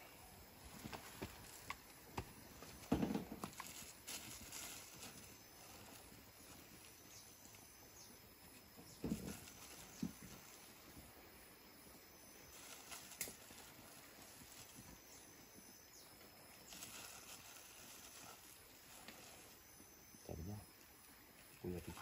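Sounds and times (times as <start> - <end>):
plastic bag rustling: 2.7 - 7.0, 12.4 - 15.5, 16.6 - 19.6.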